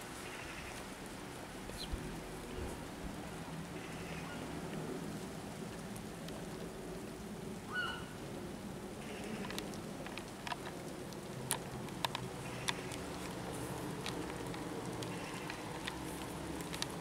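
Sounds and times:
rain on grass and leaves: 0:00.0 - 0:17.0
sharp drip ticks: 0:09.1 - 0:17.0.

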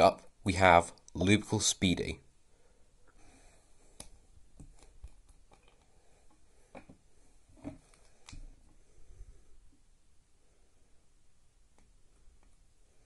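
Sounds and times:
faint clicks and taps of plastic: 0:03.9 - 0:07.0, 0:07.6 - 0:08.8.

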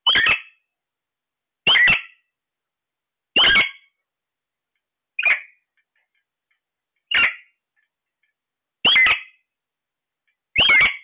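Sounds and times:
parakeets screeching: 0:00.0 - 0:00.6, 0:01.6 - 0:02.2, 0:03.4 - 0:03.9, 0:05.2 - 0:05.6, 0:07.1 - 0:07.5, 0:08.8 - 0:09.4, 0:10.6 - 0:11.0.

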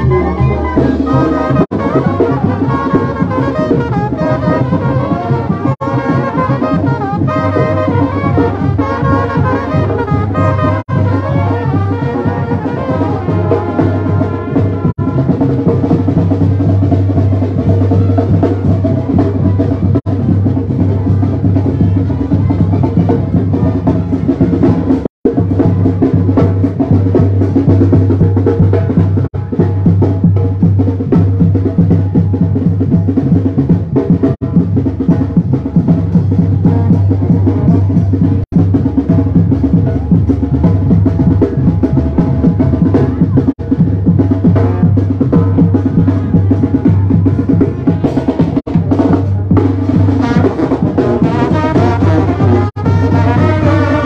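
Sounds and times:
marching brass band: 0:00.0 - 0:54.0
pounding bass drum: 0:00.0 - 0:54.0
snare drum: 0:00.0 - 0:54.0.

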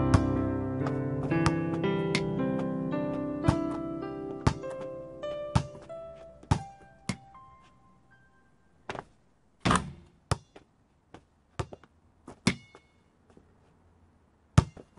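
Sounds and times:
basketball bouncing on hard court: 0:00.1 - 0:02.2, 0:03.5 - 0:03.8, 0:04.4 - 0:04.8, 0:05.5 - 0:05.9, 0:06.5 - 0:07.2, 0:14.6 - 0:14.9
basketball striking hoop metallic ring: 0:09.7 - 0:10.7, 0:12.4 - 0:13.1, 0:14.6 - 0:14.9.

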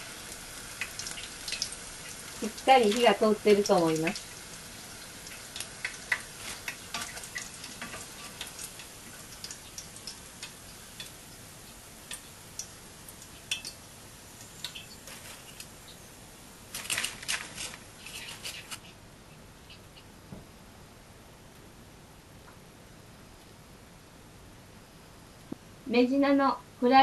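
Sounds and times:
hot oil crackling and popping: 0:00.0 - 0:18.8.

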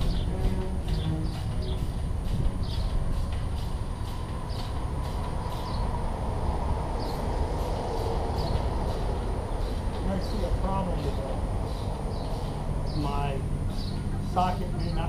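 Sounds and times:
bird chirps: 0:00.0 - 0:03.0, 0:04.5 - 0:04.8, 0:11.6 - 0:15.0
low outdoor rumble: 0:00.0 - 0:15.0.

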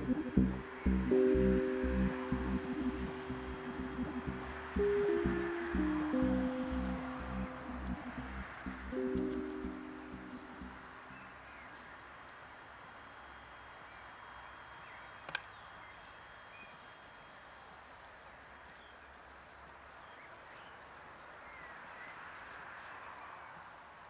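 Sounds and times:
birds chirping: 0:00.0 - 0:23.7
sharp click: 0:15.3 - 0:15.5.

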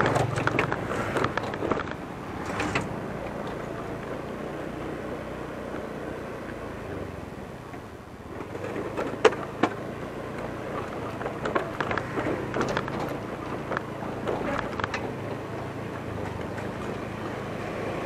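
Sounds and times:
tyres knocking over wooden planks: 0:00.0 - 0:03.6
scooter riding: 0:00.0 - 0:18.0.

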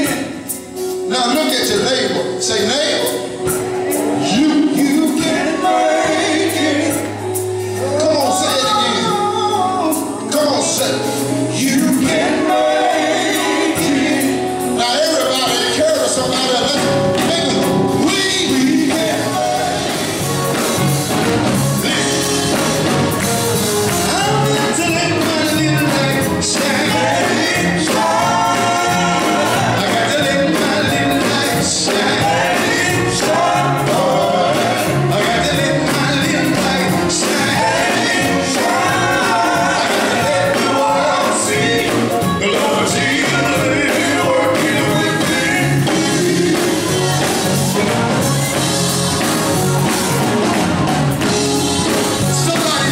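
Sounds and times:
bass guitar: 0:03.1 - 0:52.9
male vocal group singing: 0:04.0 - 0:20.9, 0:21.6 - 0:48.2, 0:51.2 - 0:52.9
electric guitar: 0:15.7 - 0:52.9.

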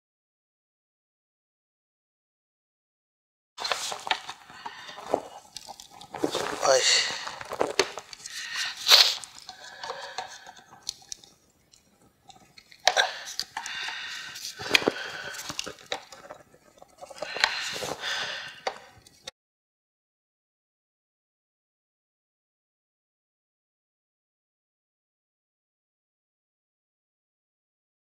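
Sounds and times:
screwdriver scraping plastic: 0:12.3 - 0:18.0.

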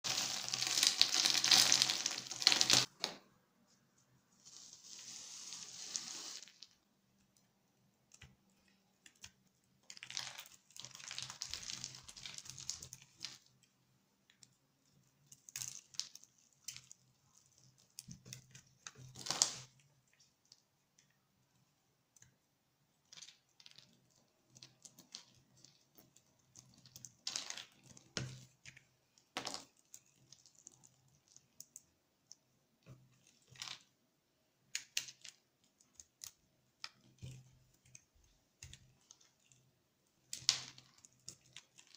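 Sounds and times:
soap cubes falling through fingers: 0:00.1 - 0:03.2.

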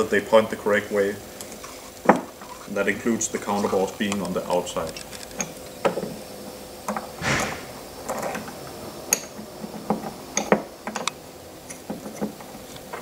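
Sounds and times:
rubbing scrape: 0:07.2 - 0:07.8.

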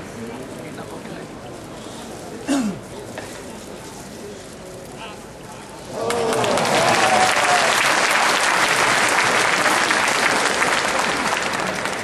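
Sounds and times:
spectators clapping: 0:05.9 - 0:12.0.

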